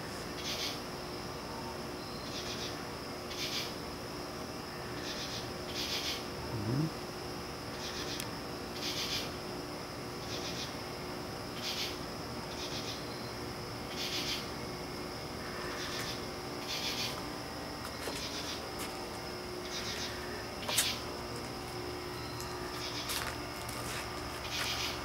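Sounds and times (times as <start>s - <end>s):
insects chirping: 0.0s - 25.0s.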